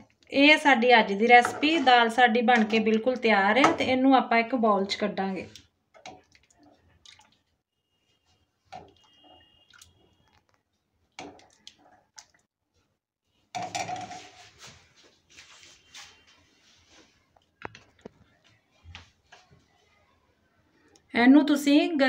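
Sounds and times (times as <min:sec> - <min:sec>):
ladle sloshing thick liquid: 0:05.5 - 0:07.6, 0:08.6 - 0:12.5.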